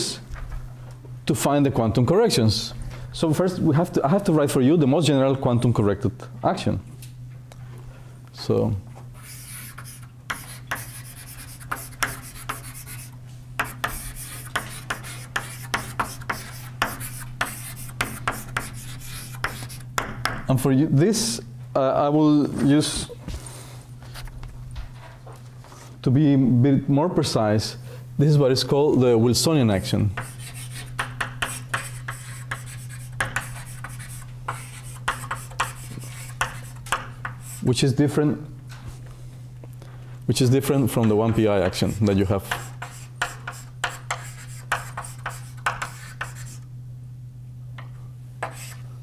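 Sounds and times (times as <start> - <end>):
low electrical hum: 0.0 - 49.0
writing strokes and taps on board: 9.3 - 20.4, 30.2 - 37.6, 41.0 - 46.6, 48.4 - 48.8.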